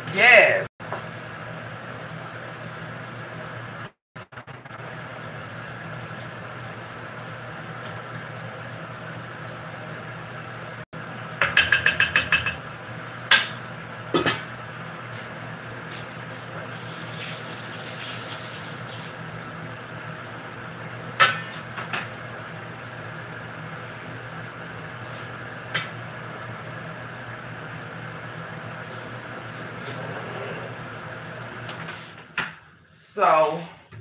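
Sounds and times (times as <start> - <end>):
running water: 16.7 - 19.1.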